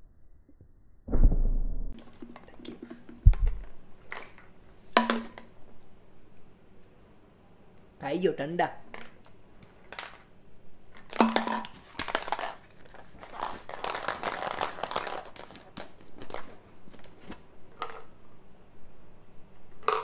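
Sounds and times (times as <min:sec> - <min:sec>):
packaging crinkling and rustling: 0:10.9 - 0:17.5.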